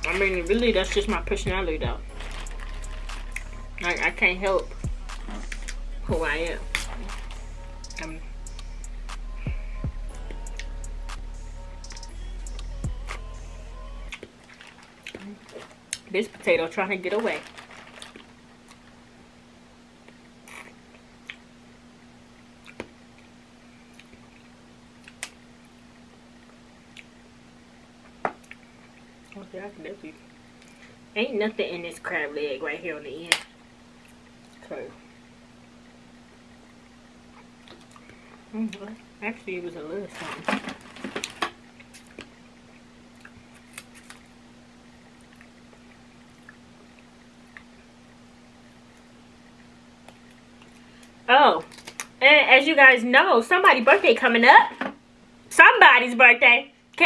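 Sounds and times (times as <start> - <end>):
steady low hum: 0.0 - 57.0
faint eating sounds: 4.6 - 8.7, 14.1 - 19.2, 20.0 - 31.1, 33.5 - 52.2
crab shells cracking: 51.7 - 52.2.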